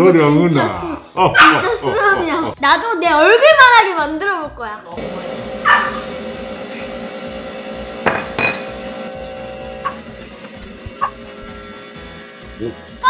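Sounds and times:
cotton candy machine motor hum: 5.0s - 13.0s.

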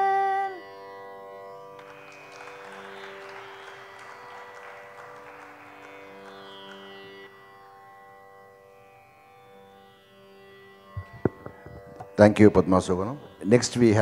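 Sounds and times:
tanpura drone: 0.0s - 14.0s
audience applause: 1.8s - 7.4s.

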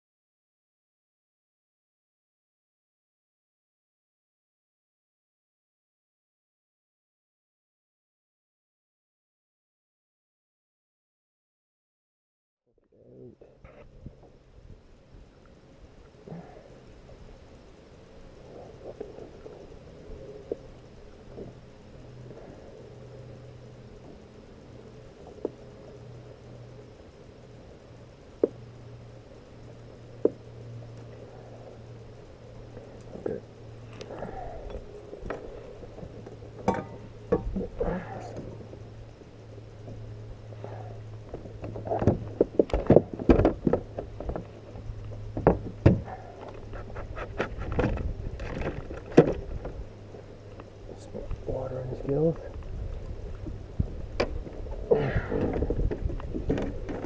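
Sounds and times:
steady low hum: 12.7s - 57.0s
knocks and clatter on kayak: 41.3s - 49.8s, 55.3s - 57.0s.

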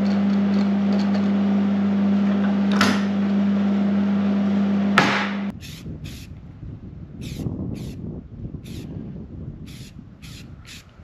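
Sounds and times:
loud machine hum: 0.0s - 6.3s.

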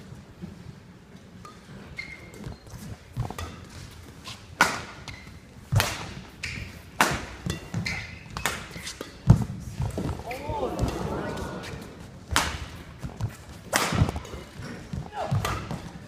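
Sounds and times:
sneaker squeaks on court: 1.9s - 2.9s, 7.6s - 9.2s
rackets striking shuttlecock: 4.6s - 14.4s.

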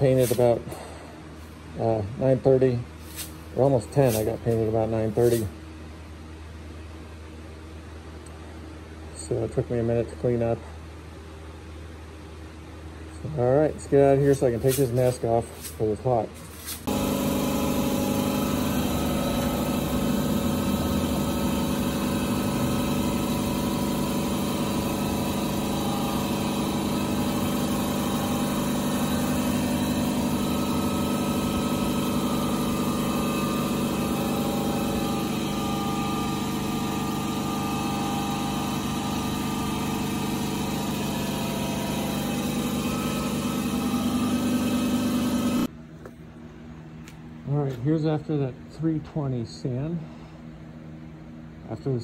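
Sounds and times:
motor humming: 16.6s - 45.7s.

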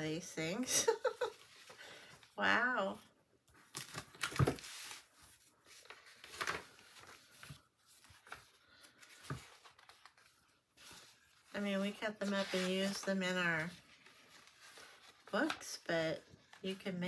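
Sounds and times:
magazine pages rustling: 3.5s - 17.0s.

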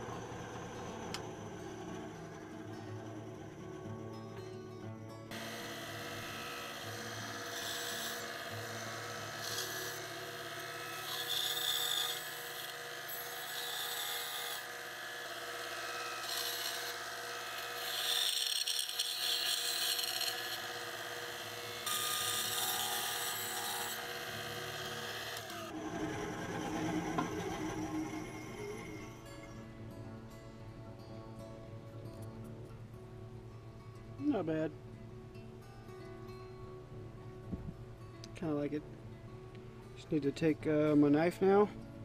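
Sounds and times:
bandsaw cutting wood: 5.3s - 29.3s
bandsaw running: 5.3s - 29.3s.

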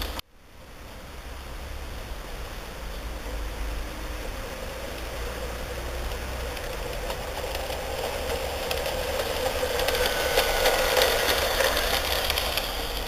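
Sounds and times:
model train motor hum: 0.0s - 0.2s, 2.8s - 13.0s
wheels clicking over rails: 0.0s - 0.2s, 2.9s - 13.0s.

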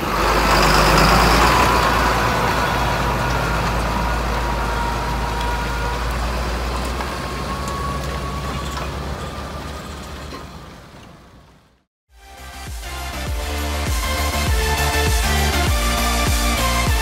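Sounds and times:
tractor diesel engine running: 0.0s - 11.8s
high whine: 12.2s - 17.0s.

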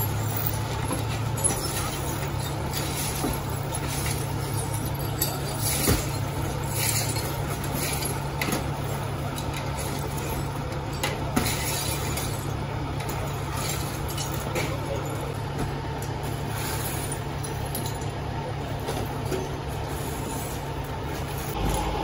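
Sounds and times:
broom scraping glass: 0.0s - 10.6s, 16.2s - 17.6s, 19.4s - 22.0s
glass fragments clinking: 0.0s - 21.9s
car engine idling: 0.0s - 22.0s.

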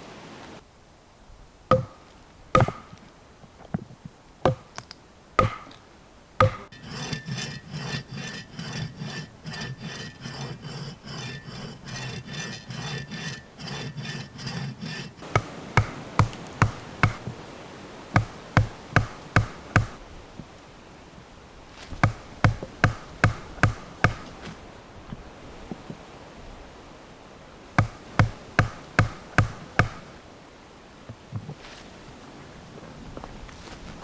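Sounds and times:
folding saw cutting stick: 6.4s - 16.4s.

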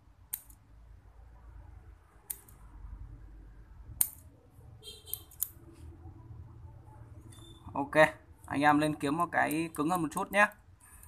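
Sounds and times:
scissors snipping metal: 5.1s - 5.6s.

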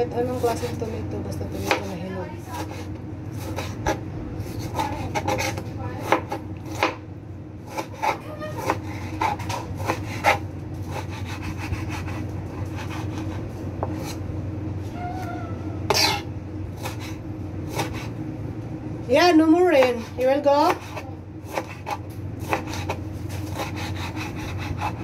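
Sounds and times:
steady low hum: 0.0s - 25.0s
knife cutting on wooden board: 2.6s - 7.0s, 7.7s - 14.2s, 15.9s - 18.1s, 20.7s - 25.0s.

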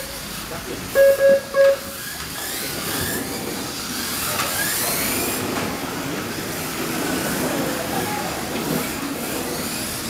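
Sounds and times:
toy car electric motors whining: 0.9s - 10.0s
short electronic beeps: 1.0s - 1.9s.

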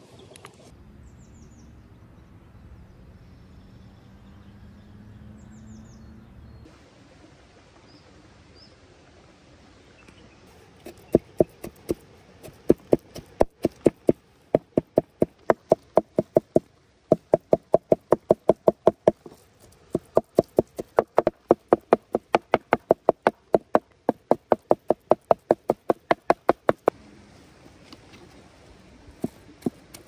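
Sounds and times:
cleaver chopping on wooden board: 10.9s - 19.2s, 20.0s - 26.9s.

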